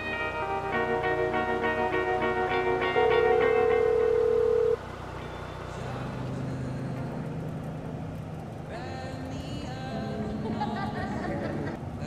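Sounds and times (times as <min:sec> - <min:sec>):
music: 0:00.0 - 0:04.0
car engine hum: 0:00.0 - 0:12.0
road and wind noise: 0:00.0 - 0:12.0.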